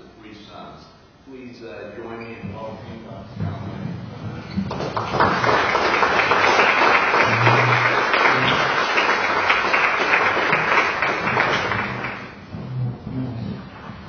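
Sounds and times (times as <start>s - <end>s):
audience applauding: 4.7s - 12.4s.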